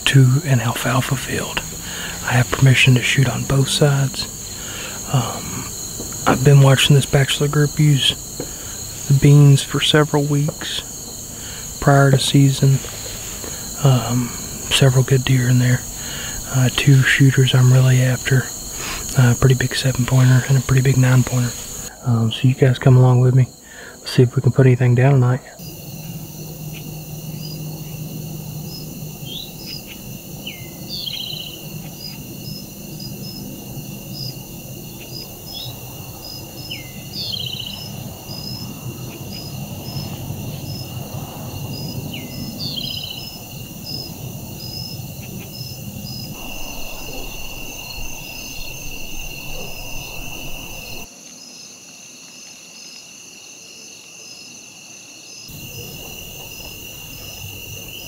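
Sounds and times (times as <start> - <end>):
insects trilling: 0.0 - 58.0
low rumble: 46.4 - 51.1.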